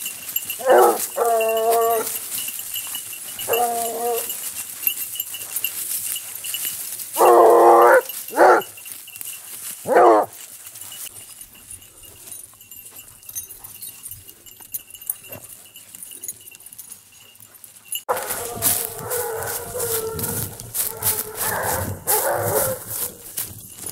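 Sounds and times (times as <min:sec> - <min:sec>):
rustling of leaf litter: 0:00.0 - 0:11.2, 0:18.1 - 0:23.9
hounds baying: 0:00.0 - 0:23.9.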